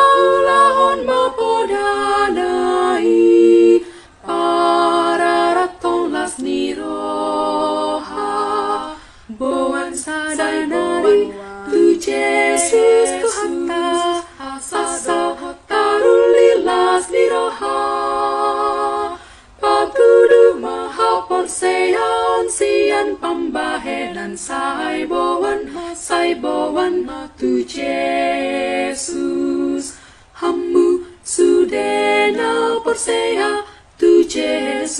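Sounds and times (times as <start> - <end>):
women's choir singing a hymn: 0.0 - 34.9
singers breathing: 3.8 - 4.2, 8.9 - 9.4, 19.2 - 19.6, 29.9 - 30.4, 33.6 - 34.0.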